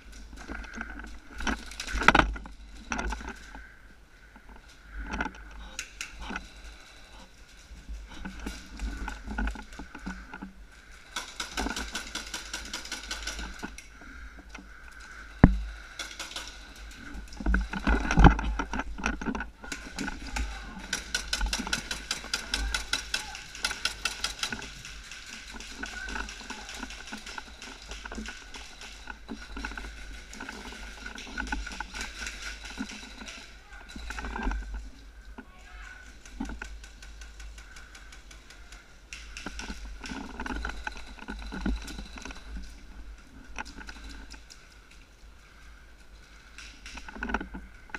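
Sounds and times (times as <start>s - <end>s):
knocks and rattles: 0.0s - 3.7s, 4.3s - 47.9s
rapid airsoft gunfire clicking: 11.0s - 13.6s.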